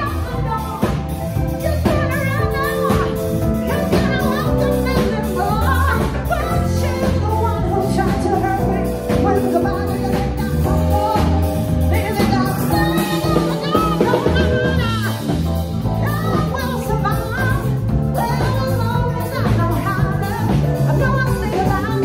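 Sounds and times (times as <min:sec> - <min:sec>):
band playing steady groove: 0:00.0 - 0:22.0
person singing into microphone: 0:00.0 - 0:22.0.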